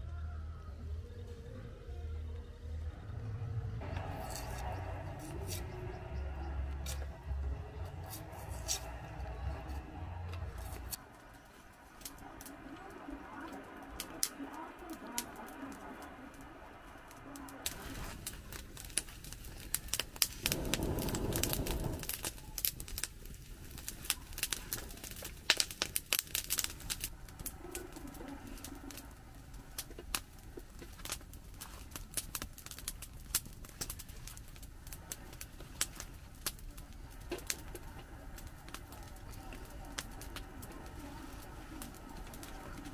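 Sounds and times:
campfire crackling and popping: 3.8 - 42.9
knife scraping a root: 4.1 - 5.8, 8.0 - 9.1.

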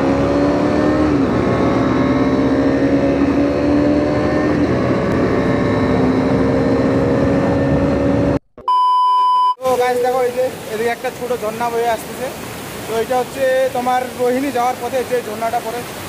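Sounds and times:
motorcycle engine hum: 0.0 - 8.4
road noise: 0.0 - 8.4, 9.6 - 16.0.

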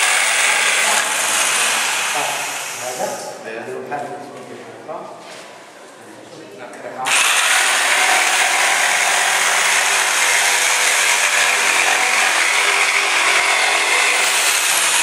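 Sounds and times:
electric jigsaw cutting wood: 0.0 - 3.0, 7.1 - 15.0.

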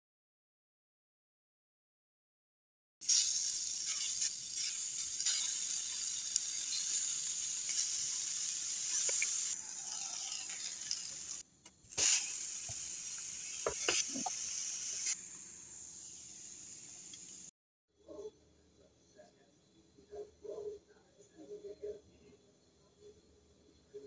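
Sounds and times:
food sizzling on electric grill: 3.0 - 17.5.

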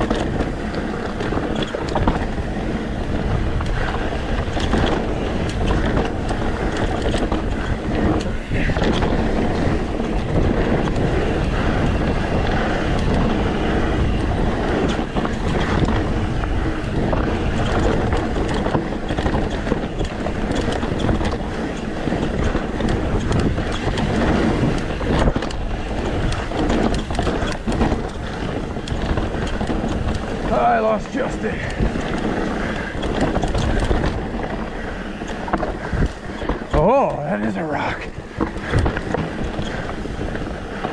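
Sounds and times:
bike rattling and knocking: 0.0 - 40.9
tyres rolling over rocky dirt: 0.0 - 40.9
wind rushing over microphone: 0.0 - 40.9.

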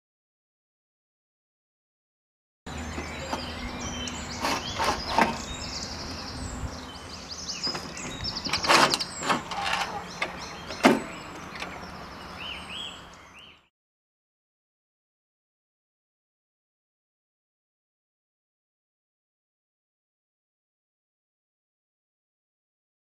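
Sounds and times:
metal scraping: 4.3 - 5.5.

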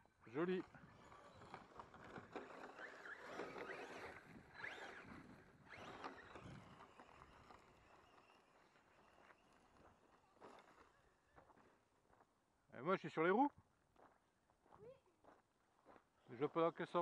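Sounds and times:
electric motor whine: 1.0 - 8.8.

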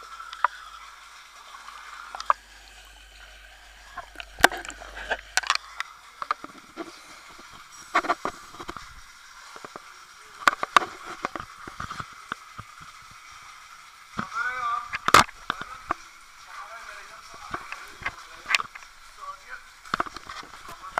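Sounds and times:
faint steady hum: 0.0 - 20.9
underwater bubbling: 0.0 - 20.9
underwater clicks and knocks: 3.8 - 13.0, 14.9 - 16.0, 19.9 - 20.8.

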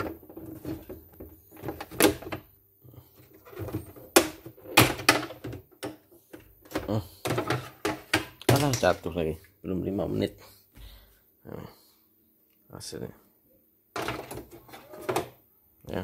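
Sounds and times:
handling knocks and clicks: 3.4 - 9.1.

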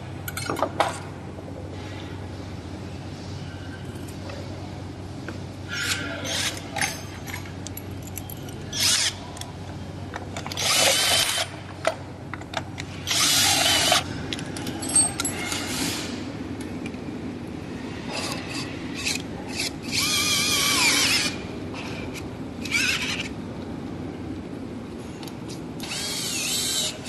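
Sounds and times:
metal parts clicking and clinking: 0.2 - 1.0, 5.8 - 9.5, 10.1 - 15.9.

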